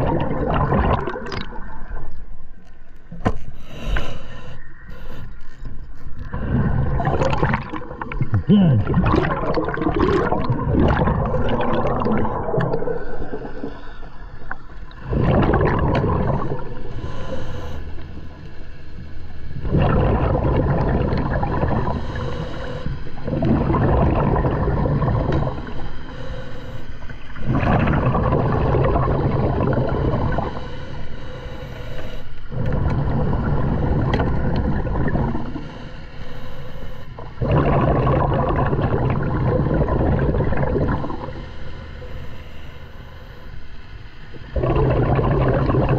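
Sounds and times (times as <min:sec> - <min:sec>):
bubbling regulator exhalations: 0:00.0 - 0:02.0, 0:06.2 - 0:13.9, 0:14.5 - 0:17.7, 0:19.6 - 0:25.9, 0:27.4 - 0:30.6, 0:32.5 - 0:35.6, 0:37.2 - 0:41.4, 0:44.5 - 0:45.9
diver inhaling through regulator: 0:03.5 - 0:05.5, 0:11.3 - 0:19.0, 0:21.3 - 0:43.7.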